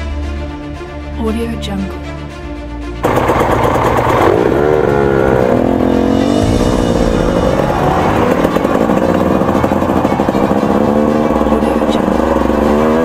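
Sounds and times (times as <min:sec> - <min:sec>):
dirt bike engine revving: 0:03.0 - 0:13.0.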